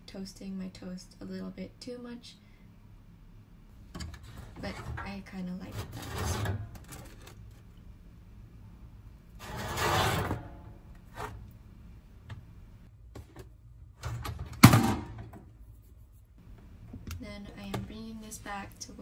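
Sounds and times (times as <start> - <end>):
toast scraping on wire rack: 4.2 - 7.5, 9.4 - 11.4.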